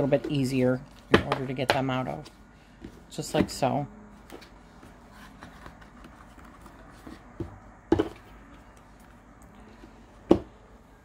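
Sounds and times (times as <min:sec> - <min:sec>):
cards rustling: 0:04.3 - 0:07.3.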